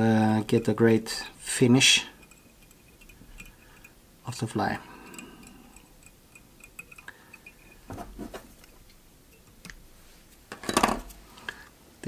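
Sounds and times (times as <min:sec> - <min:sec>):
small ticks and clicks of tools: 0:02.1 - 0:07.9.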